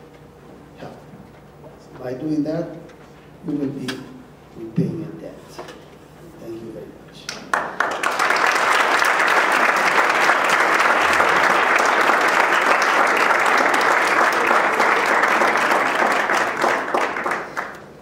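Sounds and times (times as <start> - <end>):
audience applauding: 7.5 - 18.0.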